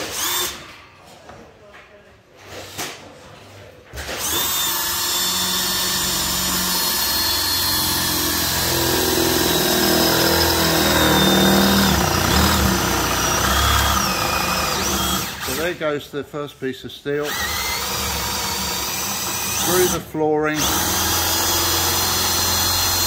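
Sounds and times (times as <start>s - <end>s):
cordless drill motor under load: 0.0s - 0.7s, 4.1s - 15.7s, 17.2s - 23.0s.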